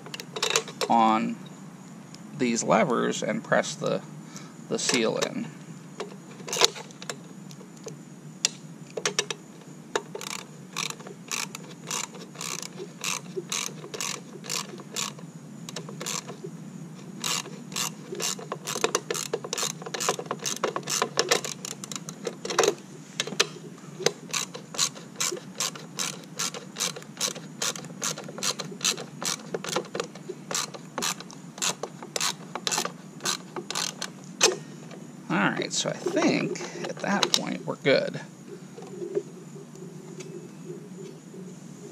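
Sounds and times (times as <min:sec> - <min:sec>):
socket ratchet clicking: 0:06.0 - 0:07.2, 0:10.0 - 0:16.4, 0:17.2 - 0:34.6.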